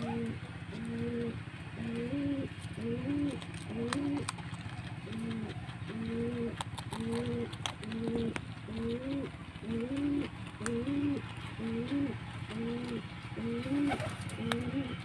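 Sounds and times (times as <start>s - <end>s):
pigeons cooing: 0.0s - 15.0s.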